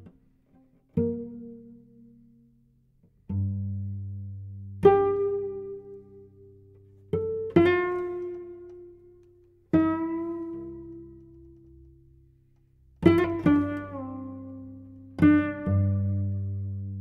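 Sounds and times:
plucked cello notes: 0.0s - 17.0s.

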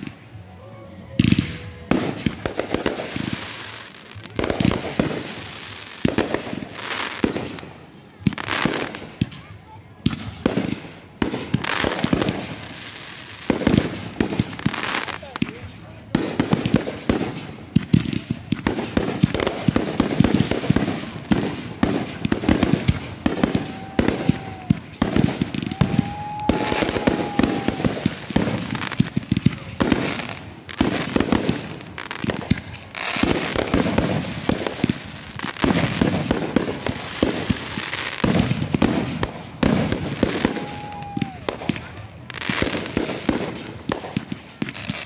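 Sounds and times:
fireworks crackling and banging: 0.0s - 45.0s
firework whistles: 21.8s - 41.8s.

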